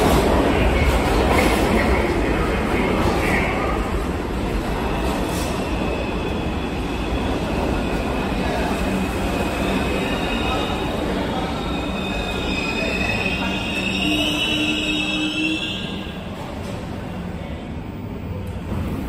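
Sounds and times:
train wheels rumbling on rails: 0:00.0 - 0:19.0
high squeal of wheels and brakes: 0:09.4 - 0:16.2.

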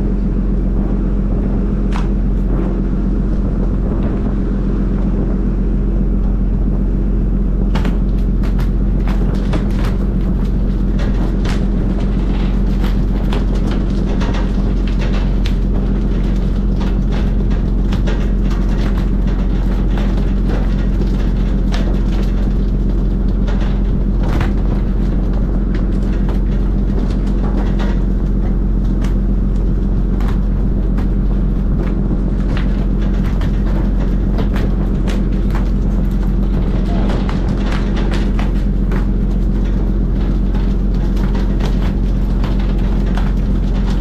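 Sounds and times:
boat engine drone: 0:00.0 - 0:44.0
fish slapping on steel deck: 0:07.5 - 0:44.0.

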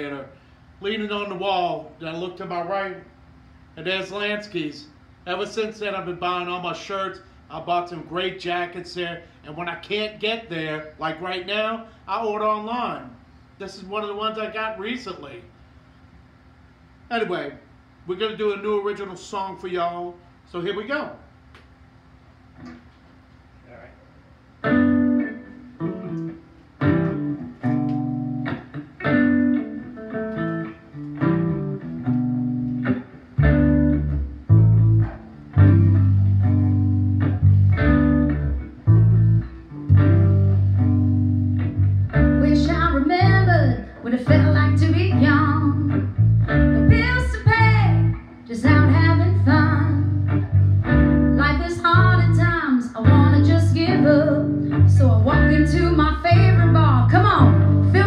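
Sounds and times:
bass guitar: 0:24.6 - 0:58.0
woman singing: 0:42.4 - 0:46.0, 0:46.9 - 0:50.1, 0:51.4 - 0:58.0.

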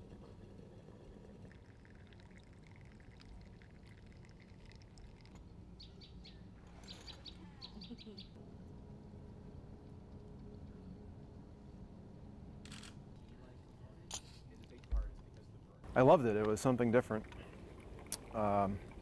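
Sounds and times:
low background noise: 0:00.0 - 0:19.0
faint bird chirps: 0:05.8 - 0:08.4.

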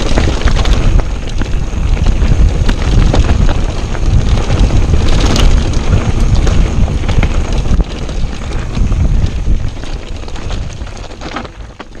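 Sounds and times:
mountain bike rattling on rough trail: 0:00.0 - 0:12.0
wind buffeting microphone: 0:00.0 - 0:12.0.

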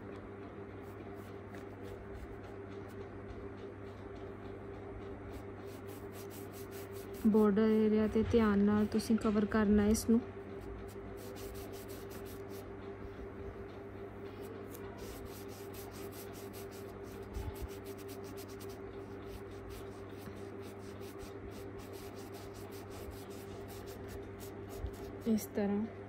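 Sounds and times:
steady low hum: 0:00.0 - 0:26.0
paintbrush scrubbing fabric: 0:05.3 - 0:07.6, 0:11.2 - 0:12.6, 0:14.7 - 0:25.3.

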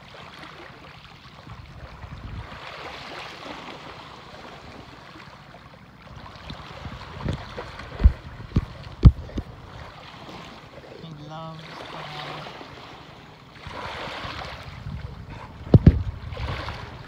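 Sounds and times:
sea water lapping at shore: 0:00.0 - 0:17.0
wind: 0:00.0 - 0:17.0
dull thumps: 0:15.6 - 0:16.1.

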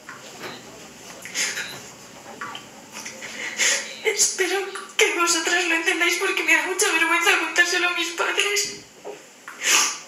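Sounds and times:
woman breathing: 0:03.2 - 0:04.0.

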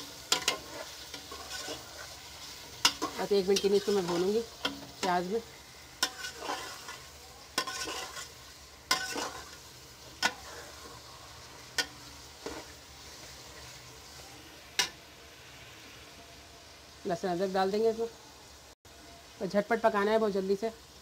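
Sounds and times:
meat sizzling in oil: 0:00.0 - 0:21.0
spoon scraping pot: 0:00.3 - 0:02.2, 0:06.0 - 0:09.6.

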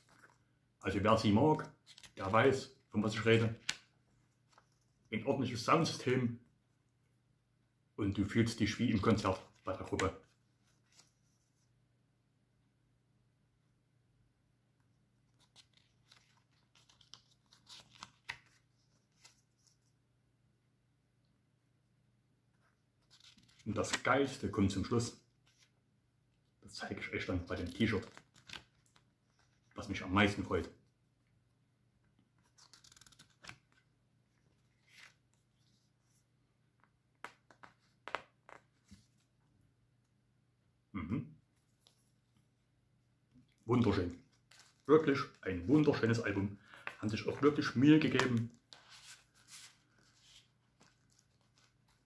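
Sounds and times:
paper rustling: 0:00.0 - 0:00.5, 0:01.6 - 0:02.4, 0:15.3 - 0:20.0, 0:23.0 - 0:24.4, 0:27.5 - 0:29.7, 0:32.4 - 0:36.2, 0:43.8 - 0:52.0.

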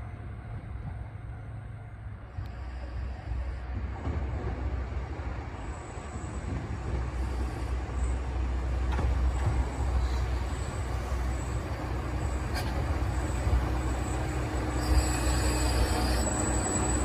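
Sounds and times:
diesel railcar rumbling: 0:00.0 - 0:17.0.

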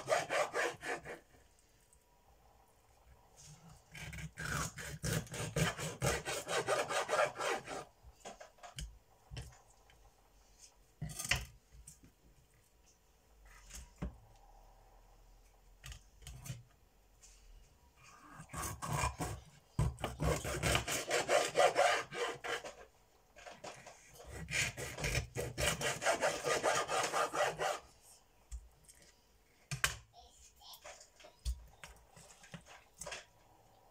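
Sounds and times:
knife sawing through fish: 0:00.0 - 0:01.2, 0:04.0 - 0:07.9, 0:20.2 - 0:22.7, 0:24.3 - 0:27.8.

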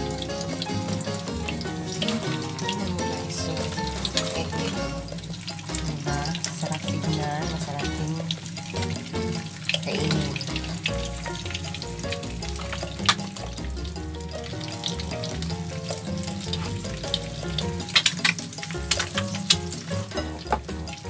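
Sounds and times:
eggs sizzling in oil: 0:00.0 - 0:21.0.

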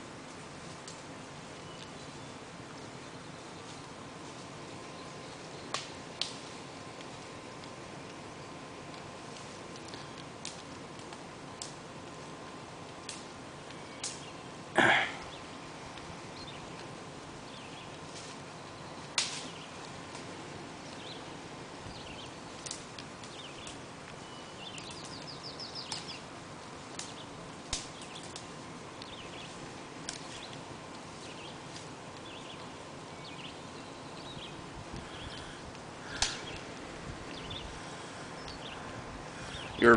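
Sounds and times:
sharp clicks: 0:36.1 - 0:36.7.

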